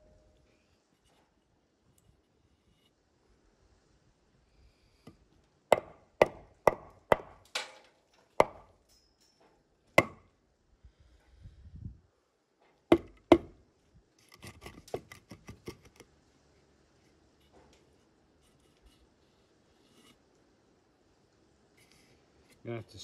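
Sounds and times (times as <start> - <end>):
hammer striking wall: 5.7 - 7.4, 8.4 - 8.7, 10.0 - 10.3, 12.9 - 13.6.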